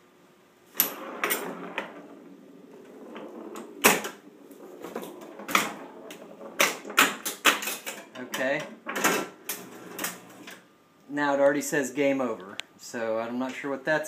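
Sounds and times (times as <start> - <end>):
pinball rolling: 0.7 - 10.6.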